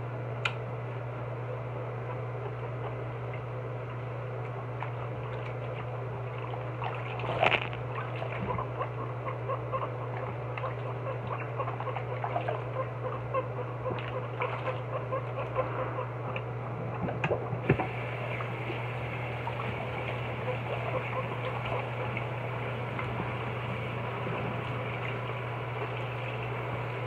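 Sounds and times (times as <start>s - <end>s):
steady low hum: 0.0s - 27.0s
water splashing in a sink: 4.8s - 8.8s, 10.1s - 12.8s, 17.0s - 27.0s.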